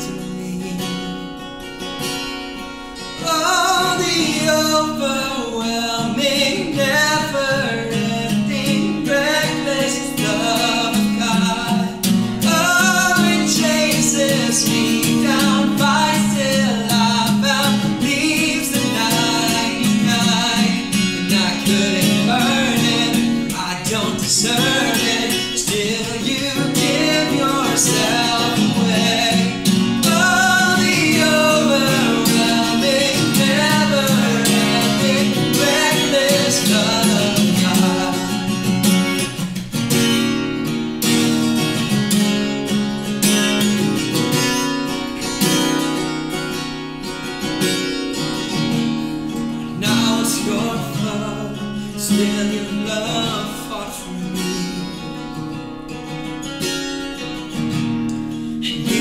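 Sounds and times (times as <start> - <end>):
man and woman singing: 0.0 - 1.4, 3.2 - 39.0, 49.8 - 55.2, 58.6 - 59.0
strummed acoustic guitar: 0.0 - 59.0.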